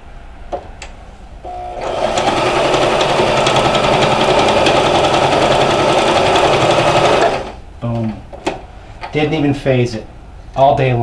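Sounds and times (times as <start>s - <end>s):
sewing machine running: 1.5s - 7.6s.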